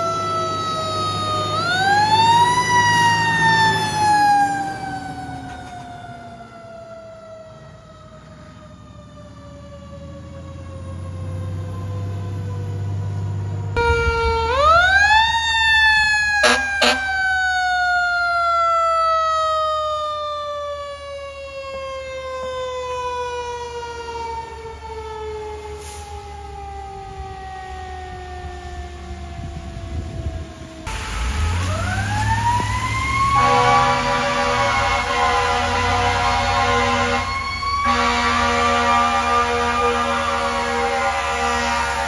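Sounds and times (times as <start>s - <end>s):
mechanical siren wailing: 0.0s - 42.0s
truck engine rumble: 0.0s - 42.0s
horn-like tones: 16.4s - 17.2s, 33.2s - 42.0s
tyres hissing on wet road: 25.6s - 26.6s, 30.5s - 37.2s.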